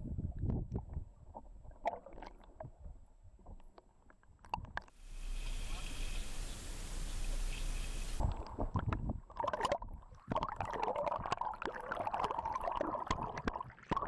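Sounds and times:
underwater gurgling and bubbling: 7.0s - 14.0s.

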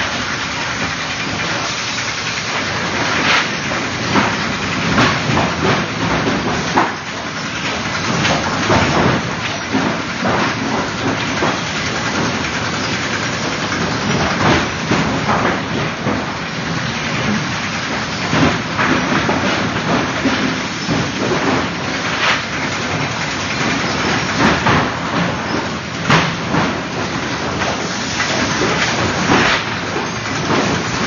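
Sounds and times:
wooden sticks clattering: 0.5s - 31.0s.

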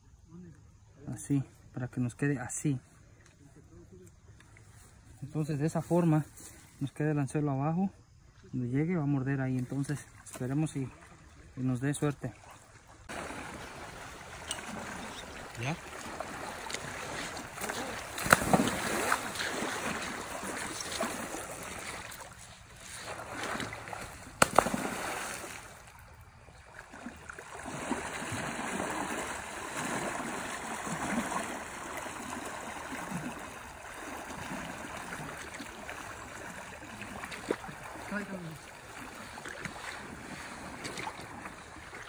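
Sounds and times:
water splashing around wading legs: 12.3s - 42.0s.

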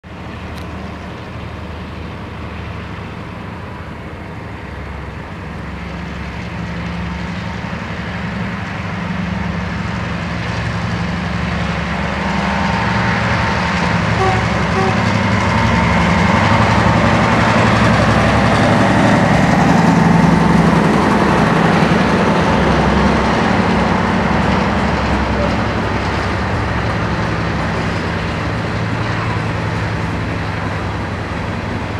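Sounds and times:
locomotive diesel engine: 0.0s - 31.9s.

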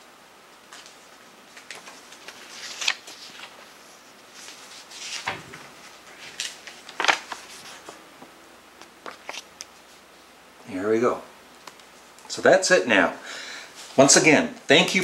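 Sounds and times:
paper rustling: 0.7s - 8.0s, 8.8s - 10.1s.

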